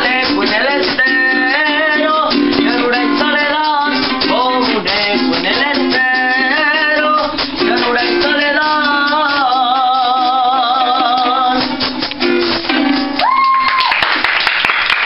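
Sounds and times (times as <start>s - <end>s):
boy singing with vibrato: 0.0s - 12.0s
strummed string instruments: 0.0s - 13.3s
clapping and applause: 13.2s - 15.0s.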